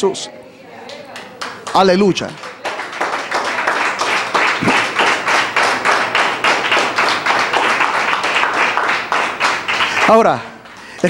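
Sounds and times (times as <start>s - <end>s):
congregation clapping in rhythm: 1.0s - 11.0s.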